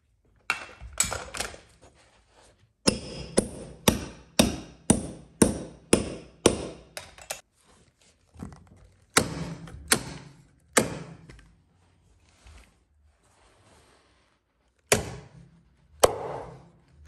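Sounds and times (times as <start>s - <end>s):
tool strikes on wooden stairs: 2.9s - 7.4s.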